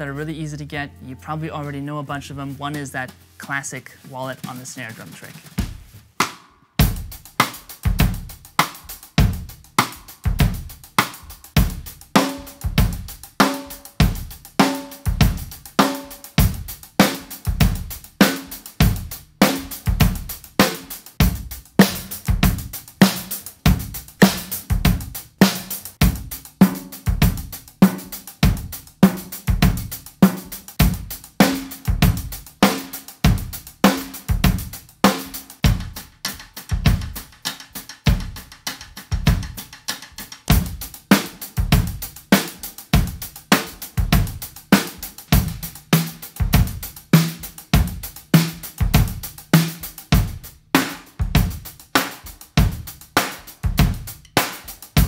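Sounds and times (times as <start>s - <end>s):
drum kit groove: 0.0s - 55.0s
snare drum hits: 4.2s - 6.6s.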